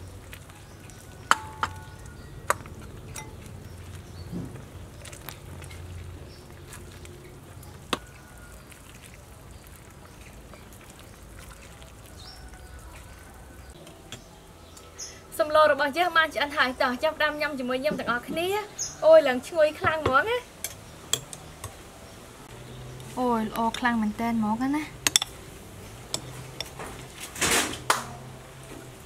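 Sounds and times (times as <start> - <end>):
metal ladle clinking on pot: 1.2 - 3.5, 25.0 - 25.4, 26.1 - 26.8.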